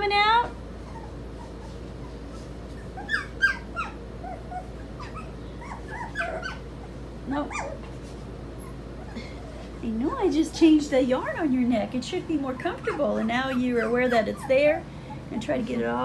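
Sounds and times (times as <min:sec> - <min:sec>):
puppies crying: 0:00.8 - 0:08.0, 0:08.6 - 0:09.8, 0:12.2 - 0:16.0.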